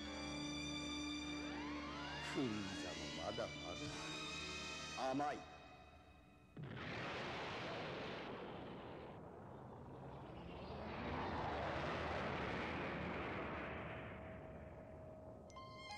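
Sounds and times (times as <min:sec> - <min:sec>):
cartoon explosion rumbling blast: 0:06.6 - 0:15.4.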